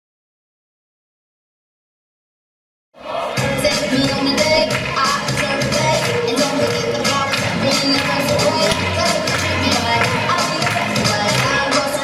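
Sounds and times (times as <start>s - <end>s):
recorded music with a beat: 3.0s - 12.0s.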